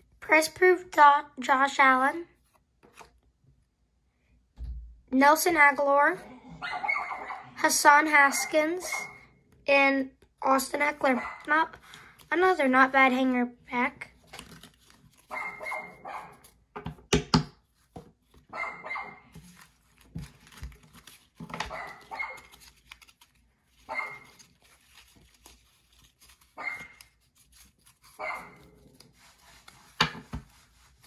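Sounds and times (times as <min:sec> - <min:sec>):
dog barking: 0:06.6 - 0:07.6, 0:11.2 - 0:11.5, 0:15.3 - 0:16.4, 0:18.5 - 0:19.3, 0:21.7 - 0:22.5, 0:23.9 - 0:24.3, 0:26.6 - 0:27.0, 0:28.2 - 0:28.7
trading cards knocking and rustling: 0:16.5 - 0:18.5, 0:19.3 - 0:23.4, 0:29.0 - 0:30.7.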